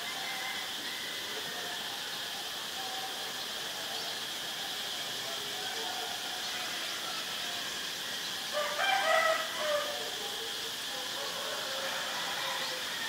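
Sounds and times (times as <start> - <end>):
rooster crowing: 0.0 - 1.8, 5.6 - 13.0
high insect drone: 0.0 - 13.0.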